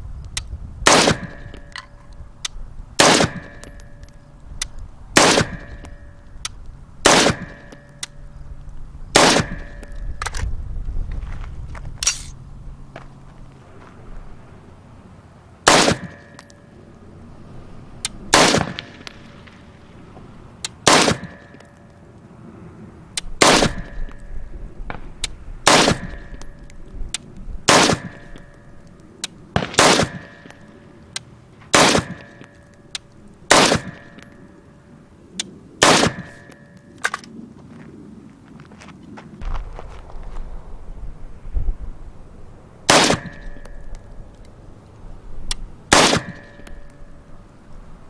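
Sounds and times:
rifle shots: 0:00.8 - 0:01.8, 0:03.0 - 0:03.8, 0:05.2 - 0:06.0, 0:07.0 - 0:07.8, 0:09.1 - 0:09.9, 0:15.6 - 0:16.5, 0:18.3 - 0:19.3, 0:20.8 - 0:21.7, 0:23.4 - 0:24.2, 0:24.9 - 0:26.5, 0:27.7 - 0:28.5, 0:29.5 - 0:30.7, 0:31.7 - 0:32.5, 0:33.5 - 0:34.3, 0:35.8 - 0:37.2, 0:42.9 - 0:43.6, 0:45.9 - 0:46.8
faint ringing tone: 0:03.4 - 0:04.4, 0:07.4 - 0:08.6, 0:28.1 - 0:29.2, 0:43.2 - 0:44.7, 0:46.3 - 0:47.9.

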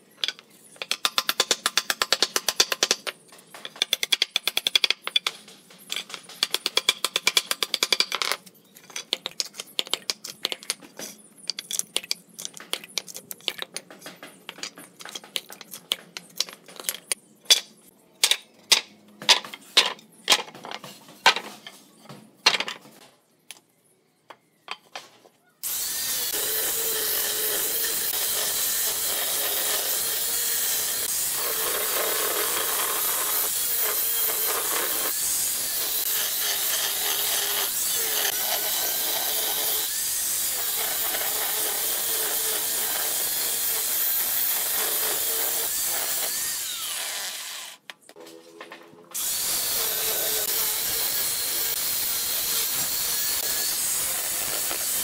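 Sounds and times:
wooden boards clacking: 0:00.2 - 0:23.1
angle grinder sanding wood: 0:25.6 - 0:47.8, 0:49.2 - 0:55.0.

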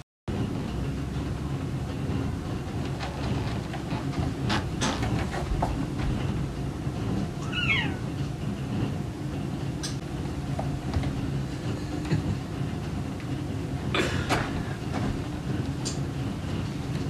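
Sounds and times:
cat meowing: 0:07.4 - 0:08.2.

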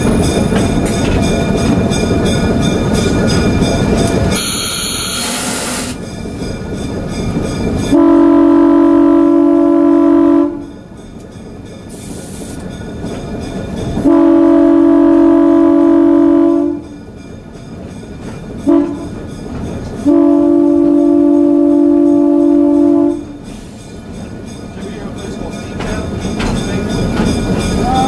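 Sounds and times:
locomotive running and wheel noise: 0:00.0 - 0:28.0
locomotive air horn blasts: 0:07.9 - 0:10.6, 0:14.0 - 0:16.8, 0:18.7 - 0:19.1, 0:20.0 - 0:23.4.

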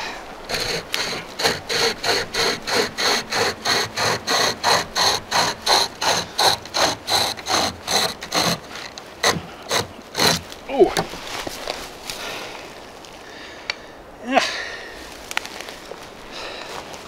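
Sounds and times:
hand chainsaw rasping through log: 0:00.0 - 0:10.6.

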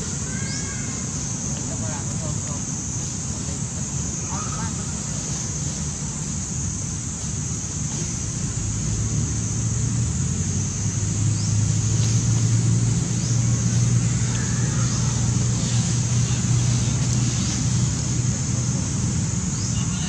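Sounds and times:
constant high hiss: 0:00.0 - 0:20.0
motor humming: 0:04.8 - 0:20.0.

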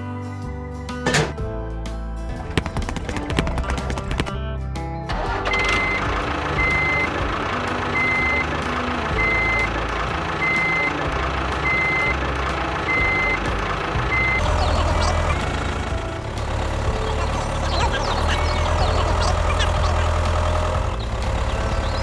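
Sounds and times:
low engine running: 0:05.1 - 0:22.0
reversing alarm beeping: 0:05.5 - 0:07.1, 0:08.0 - 0:08.5, 0:14.1 - 0:15.4.

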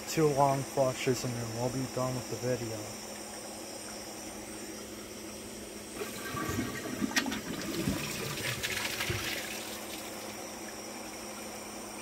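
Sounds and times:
toilet flushing: 0:06.0 - 0:10.6.

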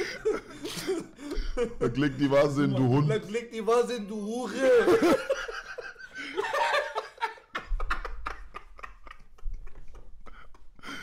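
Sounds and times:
men laughing hard: 0:00.0 - 0:02.4, 0:04.5 - 0:11.0.

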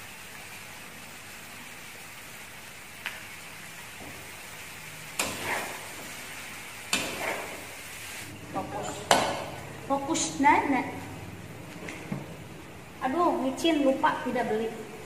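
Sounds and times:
food sizzling in a wok: 0:00.0 - 0:11.5
metal spatula striking wok: 0:05.2 - 0:05.8.

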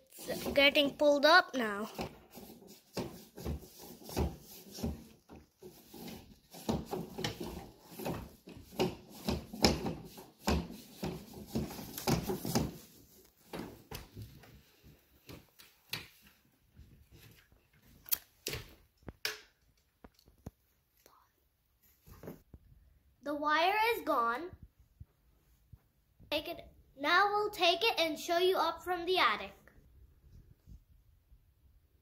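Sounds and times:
cable rubbing and knocking in wall hole: 0:00.1 - 0:16.2.

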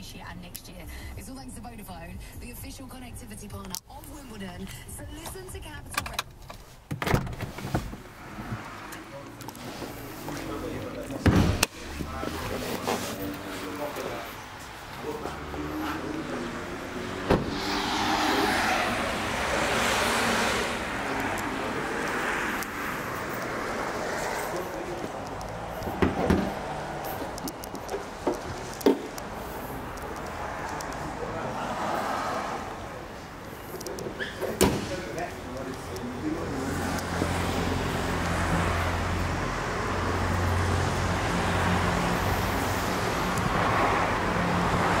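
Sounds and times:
road traffic noise: 0:00.0 - 0:45.0
car door slamming: 0:06.9 - 0:08.7, 0:11.2 - 0:12.0, 0:17.1 - 0:18.2, 0:25.8 - 0:27.3, 0:34.4 - 0:35.2.

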